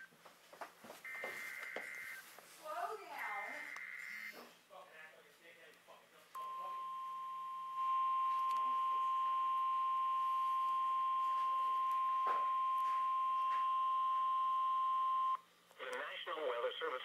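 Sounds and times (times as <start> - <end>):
steady warning alarm tone: 1.1 - 2.3, 3.2 - 4.4, 6.4 - 15.4.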